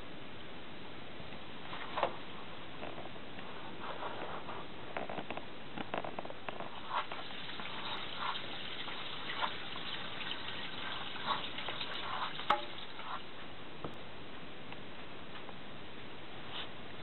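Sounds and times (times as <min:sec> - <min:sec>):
steady hiss: 0:00.0 - 0:17.0
water splashing in sink: 0:06.7 - 0:13.3.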